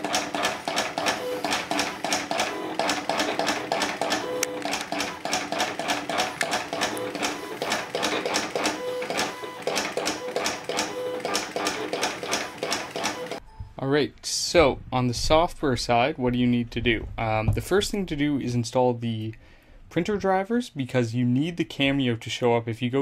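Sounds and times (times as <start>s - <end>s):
cutter stepper motors clicking: 0.0s - 13.4s.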